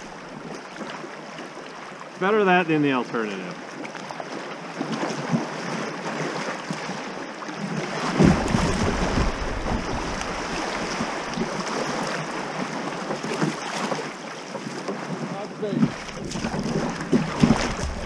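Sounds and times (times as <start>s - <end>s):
river water rushing: 0.0s - 18.0s
low rumble: 17.3s - 18.0s.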